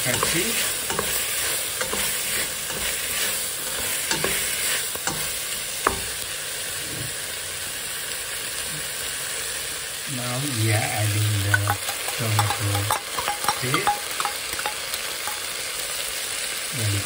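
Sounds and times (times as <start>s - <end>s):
spices sizzling in hot oil: 0.0s - 17.0s
spoon scraping a pot: 0.1s - 5.3s, 11.5s - 15.4s.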